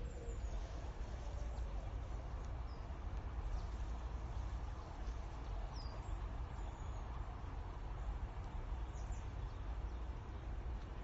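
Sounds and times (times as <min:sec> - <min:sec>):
faint bird chirps: 0:00.0 - 0:07.2
outdoor background rumble: 0:00.0 - 0:11.0.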